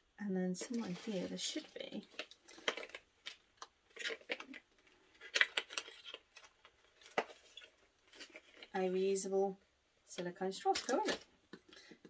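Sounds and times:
cardboard rustling and scraping: 0.6s - 3.0s.

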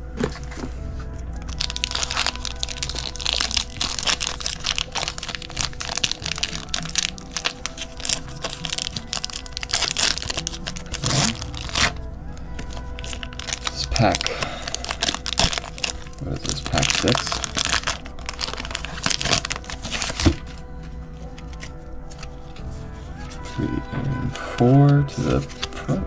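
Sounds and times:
foil wrapper crinkling: 1.4s - 20.6s.

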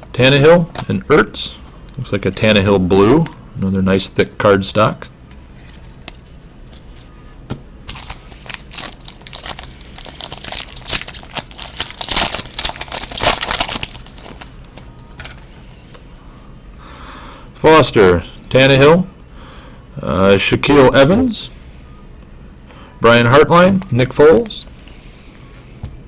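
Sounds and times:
foil wrapper crinkling and tearing: 7.9s - 14.8s.

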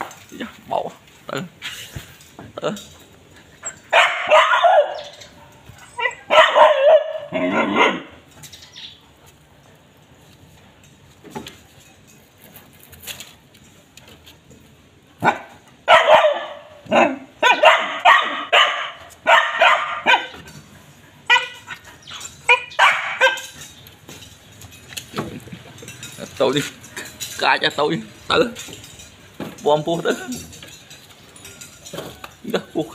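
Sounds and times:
puppy yapping: 3.6s - 8.2s, 15.2s - 20.4s, 21.2s - 23.6s.

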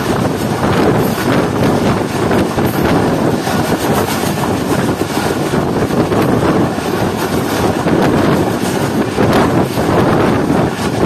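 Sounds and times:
train wheels rushing on rails: 0.0s - 11.0s
wind buffeting microphone: 0.0s - 11.0s.

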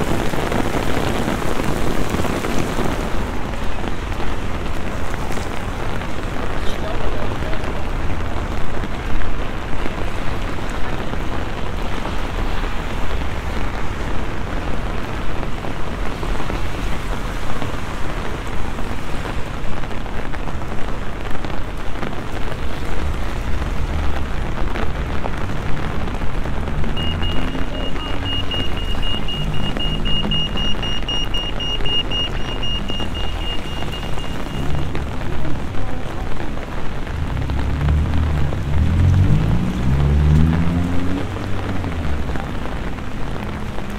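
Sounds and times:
rain splashing on street: 0.0s - 43.9s
high electronic beep: 26.9s - 34.9s.

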